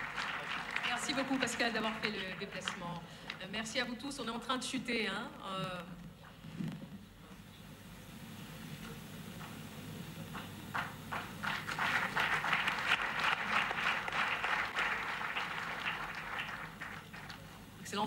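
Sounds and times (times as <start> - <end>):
audience applauding: 0.0 - 3.4, 10.3 - 17.7.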